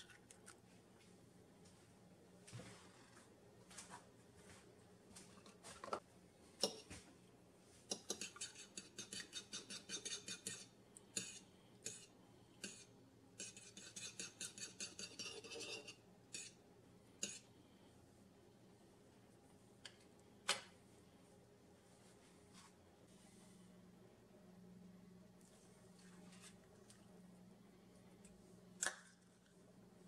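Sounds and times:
fork beating egg in bowl: 0:07.9 - 0:16.6, 0:17.2 - 0:17.5.

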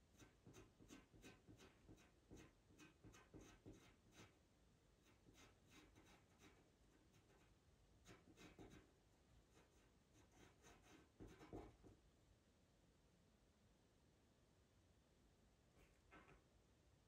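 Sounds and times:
pencil scratching on paper: 0:00.1 - 0:04.4, 0:05.0 - 0:12.0.

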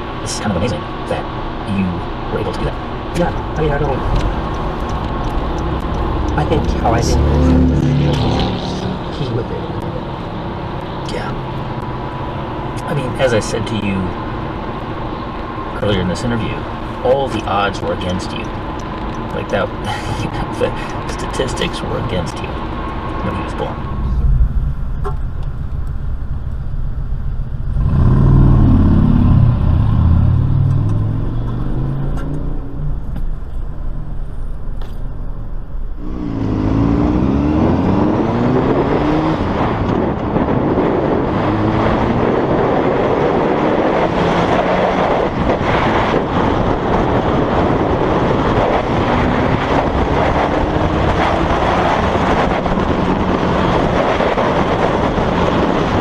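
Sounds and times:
low engine rumble: 0:00.0 - 0:37.4
heavy wind noise: 0:00.0 - 0:56.0
motorcycle engine accelerating: 0:23.4 - 0:35.0, 0:35.6 - 0:56.0.

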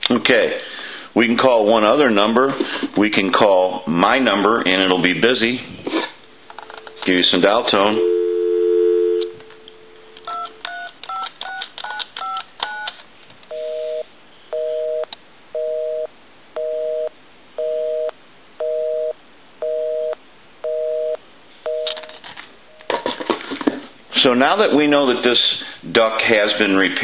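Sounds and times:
telephone dial tone: 0:08.0 - 0:09.4, 0:10.2 - 0:12.9
busy signal tone: 0:08.0 - 0:10.4, 0:13.5 - 0:21.9.

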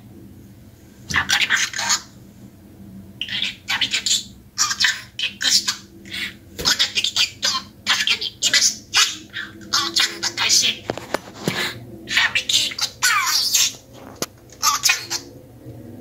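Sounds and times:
talking bird chattering: 0:01.1 - 0:02.2, 0:03.2 - 0:14.0, 0:14.6 - 0:15.3.

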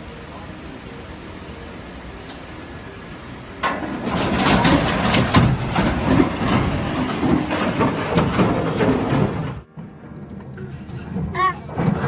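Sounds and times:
bridge collapsing crash: 0:03.6 - 0:12.0
crashing rumble with bangs: 0:03.6 - 0:12.0.

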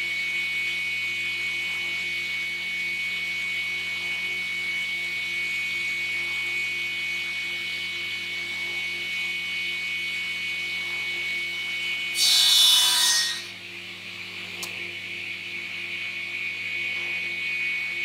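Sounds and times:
panel saw whining: 0:12.1 - 0:13.6
saw blade rasping through wood: 0:12.2 - 0:13.5.

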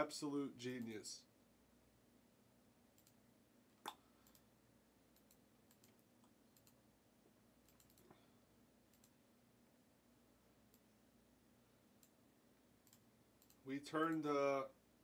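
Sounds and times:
computer mouse clicks: 0:03.0 - 0:03.2, 0:04.2 - 0:04.5, 0:05.1 - 0:06.8, 0:07.6 - 0:08.2, 0:08.9 - 0:09.2, 0:12.8 - 0:14.3.

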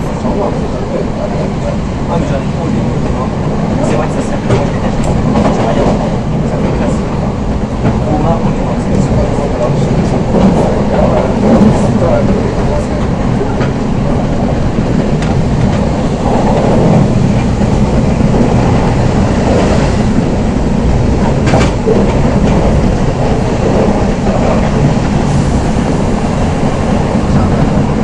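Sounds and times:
train running rumble: 0:00.0 - 0:28.0.

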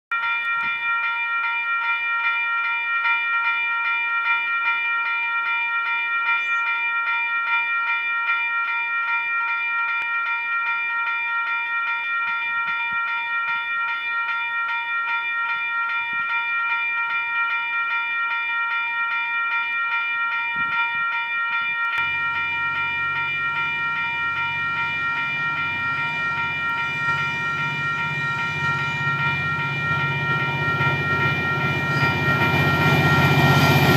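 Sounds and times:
level crossing warning bell: 0:00.1 - 0:33.9
train rumble: 0:22.0 - 0:33.9.

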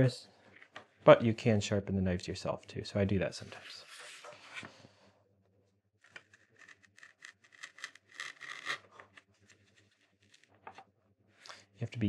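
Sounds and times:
knife carving wood: 0:06.1 - 0:10.5.

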